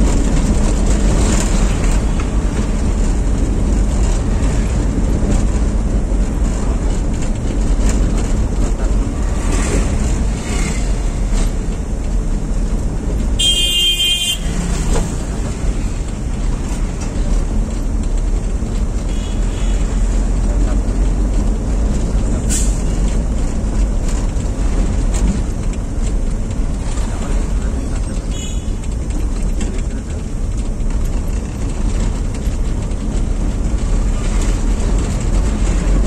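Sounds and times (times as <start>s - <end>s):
car engine and road rumble: 0.0s - 36.0s
car horn honking: 13.4s - 14.8s, 28.3s - 28.8s.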